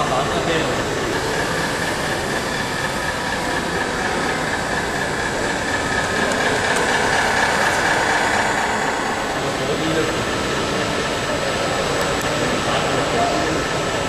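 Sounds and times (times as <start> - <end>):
toy truck motor whine: 1.2 - 11.1.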